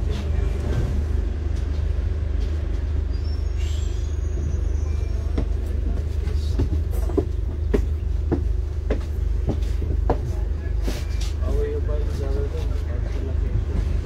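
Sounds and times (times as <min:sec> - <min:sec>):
bus engine rumbling: 0:00.0 - 0:14.0.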